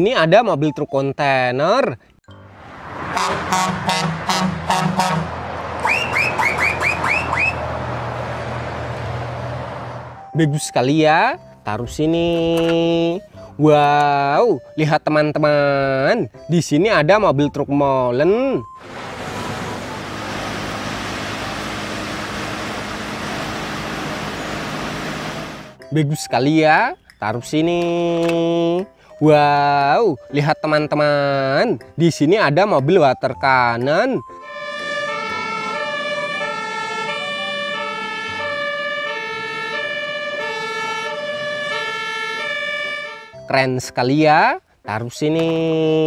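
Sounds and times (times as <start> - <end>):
road noise rushing: 2.3 - 10.4, 18.6 - 25.8, 34.3 - 43.3
two-tone emergency siren: 3.0 - 7.7, 34.2 - 43.5
truck diesel engine running: 18.8 - 25.8.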